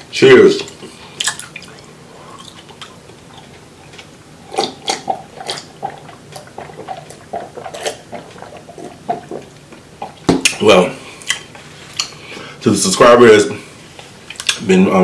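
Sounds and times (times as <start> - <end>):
man gulping a drink: 0.7 - 10.6.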